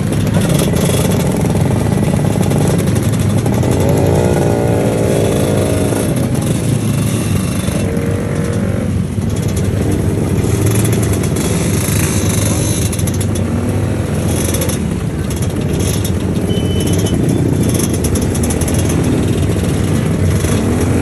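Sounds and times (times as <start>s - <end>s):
scooter engine revving: 0.0s - 21.0s
scooter engines passing: 0.0s - 21.0s.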